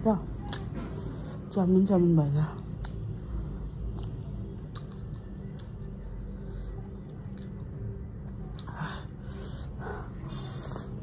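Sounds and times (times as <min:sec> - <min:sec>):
steady low hum: 0:00.0 - 0:11.0
person chewing noodles: 0:02.8 - 0:11.0.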